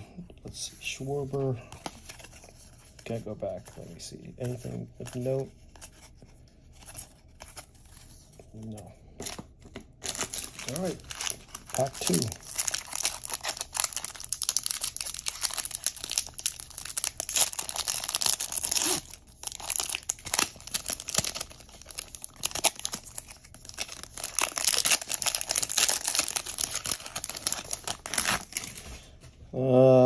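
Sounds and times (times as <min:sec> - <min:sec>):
cards being handled: 0:01.2 - 0:13.8
wrapper tearing and crinkling: 0:10.0 - 0:28.9.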